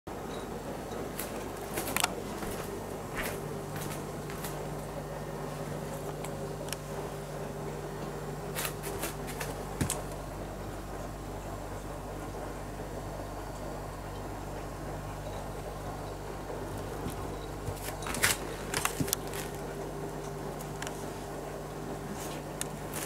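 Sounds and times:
steady low hum: 0:00.1 - 0:23.0
soft rustles and clicks: 0:01.0 - 0:06.9, 0:08.5 - 0:10.2, 0:16.7 - 0:21.4, 0:22.0 - 0:23.0.

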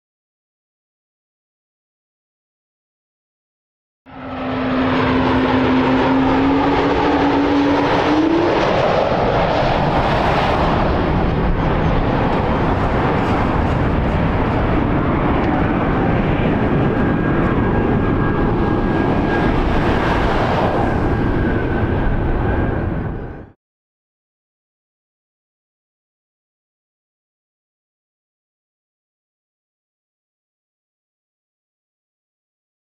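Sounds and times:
jet engines running: 0:04.1 - 0:23.6.

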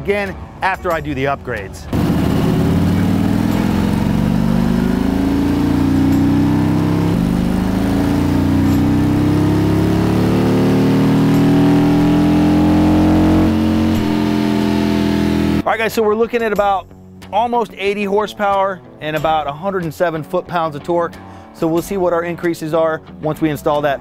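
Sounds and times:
motorcycle engine revving: 0:01.9 - 0:15.6.

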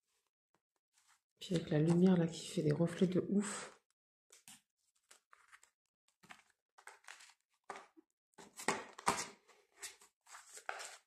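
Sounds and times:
plastic binder pocket crinkling: 0:04.4 - 0:11.0.

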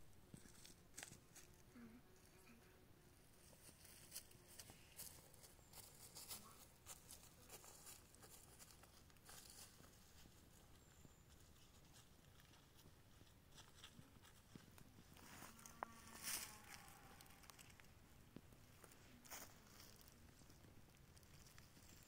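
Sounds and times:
footsteps in dry leaves: 0:03.6 - 0:17.9, 0:18.7 - 0:22.0.

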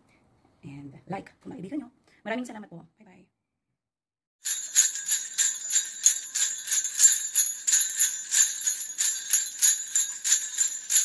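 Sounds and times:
jingle bells shaken: 0:04.4 - 0:11.0.

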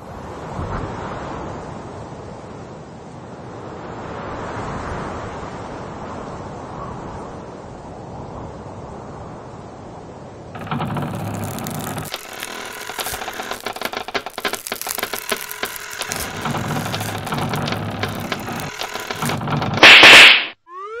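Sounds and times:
mechanical clicking and ratcheting: 0:10.6 - 0:20.2.

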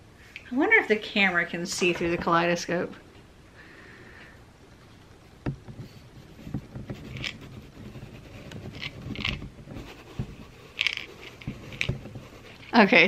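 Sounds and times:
small knocks: 0:05.4 - 0:12.6
rubbing scrapes: 0:05.7 - 0:13.0.

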